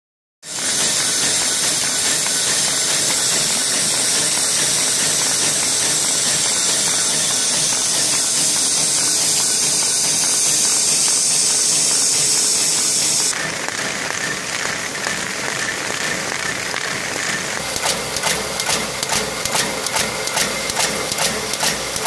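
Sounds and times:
printing press running: 0:00.4 - 0:22.0.

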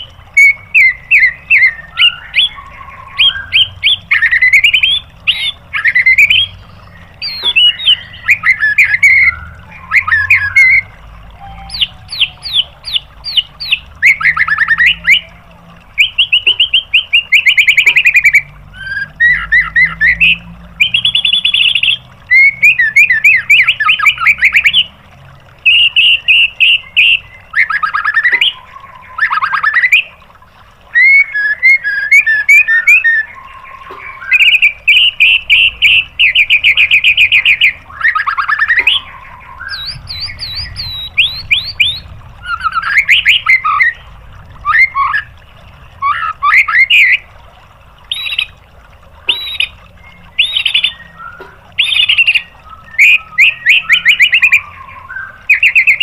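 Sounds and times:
songbird singing: 0:00.0 - 0:56.0.

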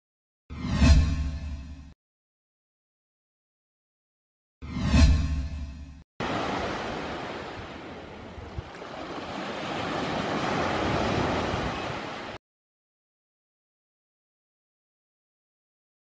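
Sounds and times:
ocean waves washing onto beach: 0:06.2 - 0:12.4.

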